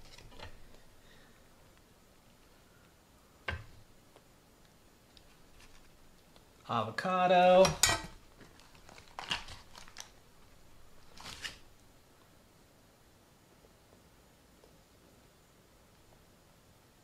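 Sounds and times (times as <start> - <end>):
soft rustle: 4.0 - 6.6, 8.4 - 12.4
man speaking: 6.7 - 7.8
dishes and utensils clicking: 7.6 - 8.2.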